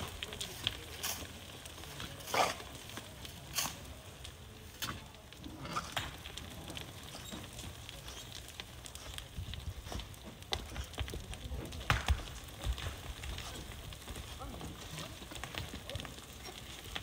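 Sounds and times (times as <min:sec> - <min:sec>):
shovel scraping sand and gravel: 0:02.2 - 0:02.6.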